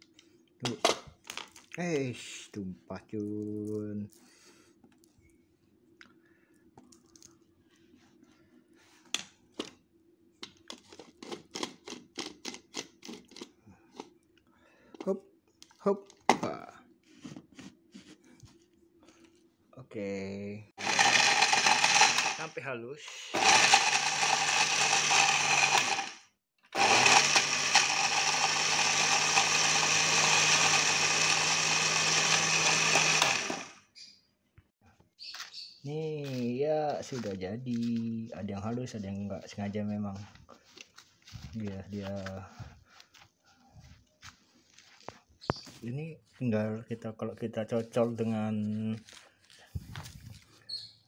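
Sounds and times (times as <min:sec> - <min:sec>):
blender blade unit scraping onto jar: 0:20.8 - 0:22.5
electric blender grinding: 0:20.8 - 0:22.6, 0:23.3 - 0:33.8.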